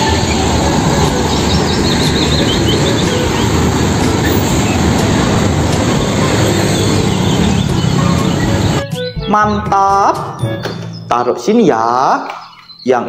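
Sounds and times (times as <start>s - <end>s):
road traffic rumble: 0.0s - 9.0s.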